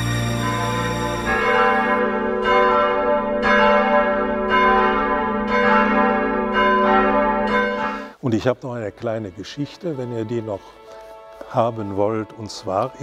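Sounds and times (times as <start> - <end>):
bells ringing: 0.0 - 8.2.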